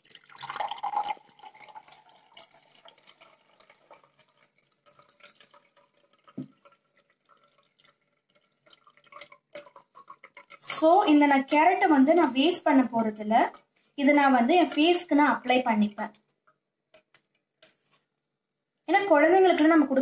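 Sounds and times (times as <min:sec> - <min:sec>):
juice pouring through strainer: 0:00.0 - 0:15.6
juice trickling and dripping: 0:00.0 - 0:18.6.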